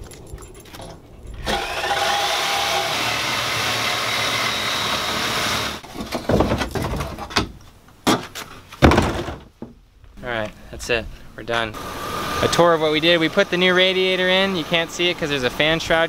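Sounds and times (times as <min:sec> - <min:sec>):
reciprocating saw cutting metal: 0:01.4 - 0:05.8
pieces thumping into plastic bin: 0:08.8 - 0:09.5.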